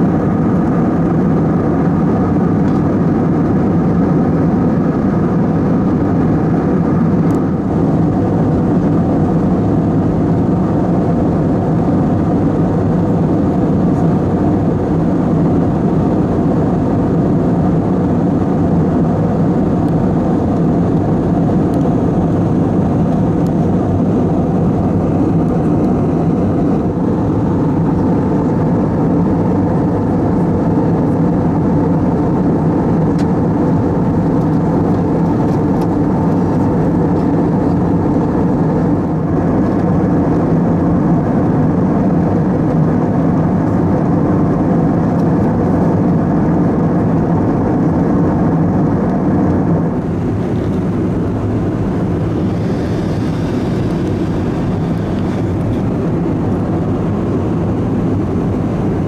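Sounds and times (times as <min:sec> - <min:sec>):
jet engines humming: 0:00.0 - 0:59.0
air rushing over fuselage: 0:48.4 - 0:59.0.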